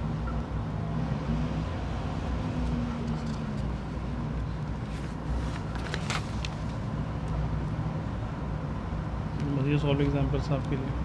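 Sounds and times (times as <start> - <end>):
paper rustling: 4.8 - 6.8.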